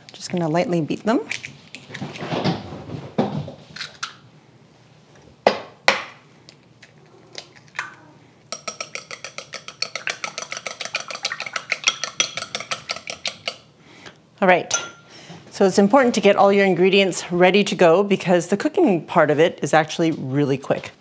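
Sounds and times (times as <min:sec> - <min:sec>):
eggshell tapping on ceramic bowl: 0:07.8 - 0:13.6
chopsticks beating eggs in bowl: 0:08.5 - 0:13.7.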